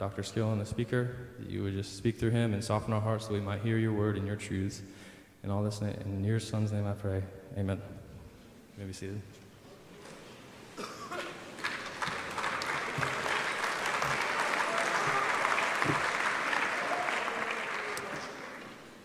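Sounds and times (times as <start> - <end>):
audience applauding: 11.2 - 19.0.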